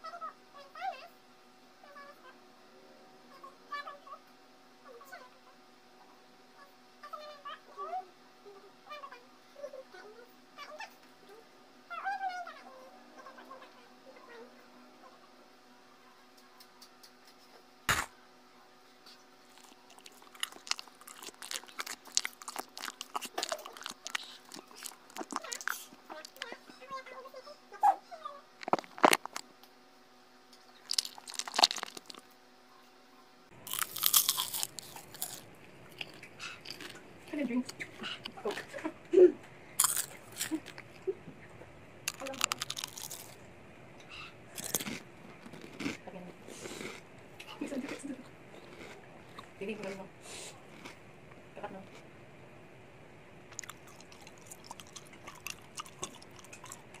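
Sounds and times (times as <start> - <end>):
chewing fresh fruit: 19.0 - 26.6, 28.6 - 29.5, 30.7 - 32.3, 33.6 - 38.8, 39.8 - 41.1, 42.1 - 43.4, 44.5 - 51.0, 53.5 - 57.0
crunching clicks of eating: 19.1 - 26.6, 28.6 - 29.7, 30.5 - 32.3, 33.6 - 38.7, 39.8 - 41.0, 42.0 - 43.4, 44.5 - 46.0, 46.6 - 50.0, 50.7 - 51.0, 53.5 - 57.0.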